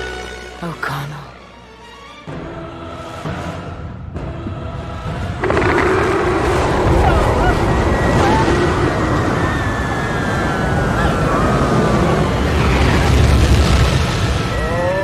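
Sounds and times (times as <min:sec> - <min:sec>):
deep rumble: 0:04.1 - 0:15.0
rushing wind: 0:04.2 - 0:15.0.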